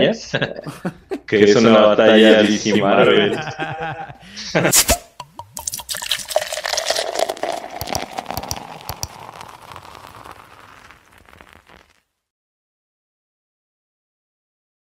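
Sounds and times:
dense crackling fizzing effect: 4.8 - 12.3.

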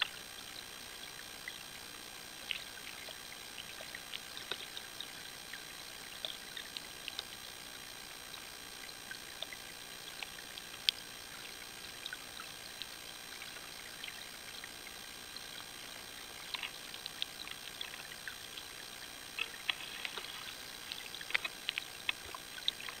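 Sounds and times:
underwater flowing water hiss: 0.0 - 23.0
sharp underwater clicks: 2.4 - 7.4, 11.9 - 23.0.

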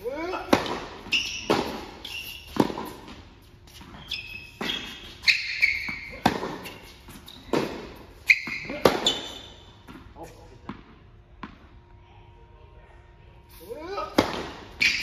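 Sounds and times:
sneakers squeaking on court: 0.2 - 10.1, 14.3 - 15.0
tennis ball hits and bounces: 0.4 - 4.0, 4.6 - 10.1, 14.2 - 15.0.

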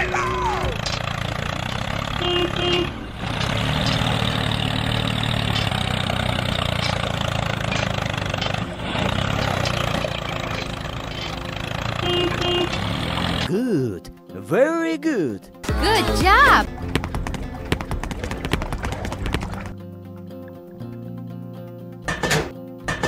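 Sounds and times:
heavy engine running: 0.0 - 13.5.

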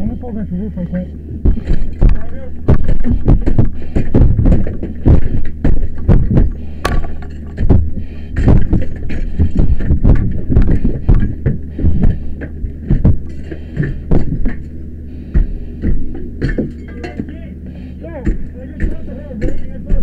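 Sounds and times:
steady low hum: 0.0 - 20.0
muffled low thumps and knocks: 1.2 - 16.8.

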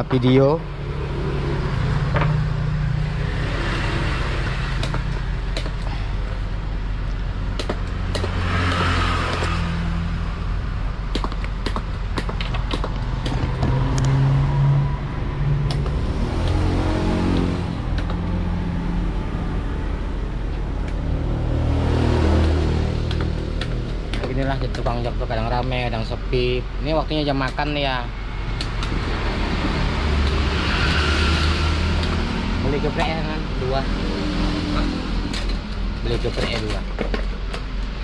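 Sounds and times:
vehicle engines passing: 0.0 - 38.0
sharp clicks and knocks: 4.4 - 6.0, 7.5 - 9.7, 11.1 - 14.2, 15.6 - 16.7, 17.3 - 18.4, 22.3 - 26.2, 28.5 - 31.1, 34.8 - 38.0.

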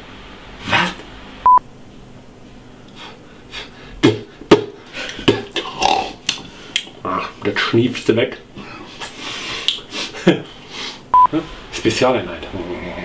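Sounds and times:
man puffing and sniffing: 8.6 - 11.1.

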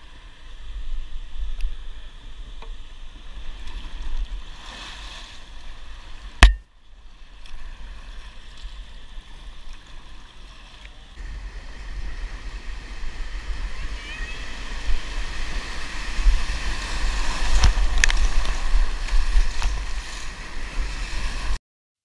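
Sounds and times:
paddle strokes and water splashing: 0.1 - 21.6
sharp loud knock: 6.4 - 6.6
wind rumble on microphone: 11.2 - 21.6.

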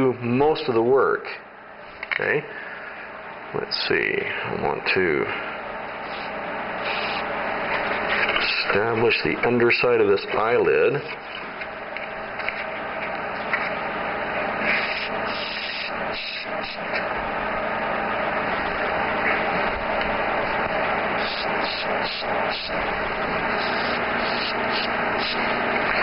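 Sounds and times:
airbrush spraying hiss: 6.0 - 7.3, 14.6 - 17.0, 21.1 - 26.0
small motor humming: 11.3 - 26.0.

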